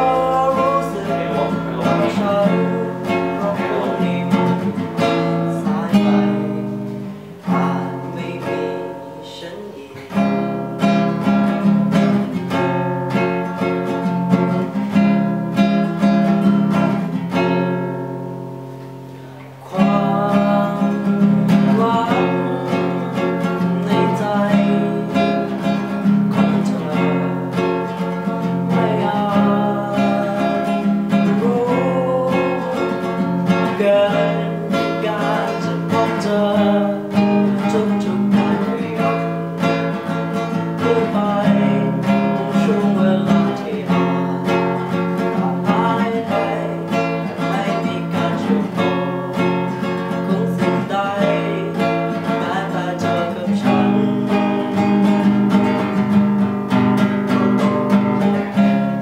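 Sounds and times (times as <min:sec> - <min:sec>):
man singing pop song: 0:00.0 - 0:10.4, 0:19.5 - 0:55.8
acoustic guitar strumming: 0:00.0 - 0:59.0.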